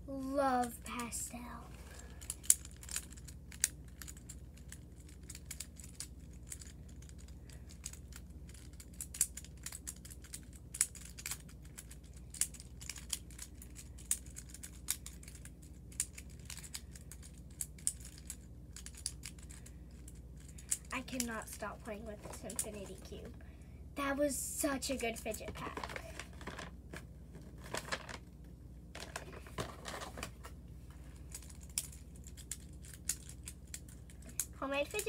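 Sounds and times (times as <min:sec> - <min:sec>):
fidget toy clicking: 0:02.2 - 0:21.3.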